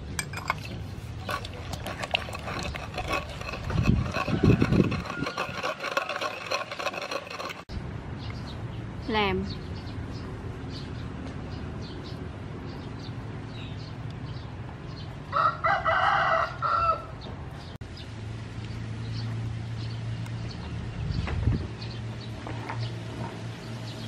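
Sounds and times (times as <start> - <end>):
rooster crowing: 4.2 - 6.2, 15.3 - 17.2.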